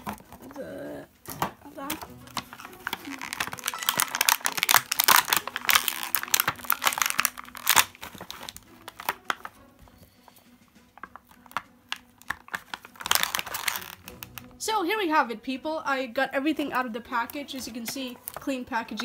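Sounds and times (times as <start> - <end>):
plastic bags crinkling: 1.2 - 9.7, 11.0 - 14.6, 17.1 - 19.0
scissors cutting plastic: 1.2 - 9.7, 11.0 - 14.5.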